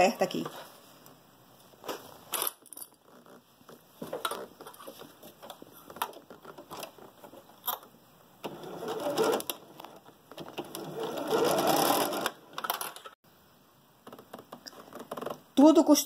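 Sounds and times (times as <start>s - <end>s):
sewing machine stitching: 8.4s - 12.8s.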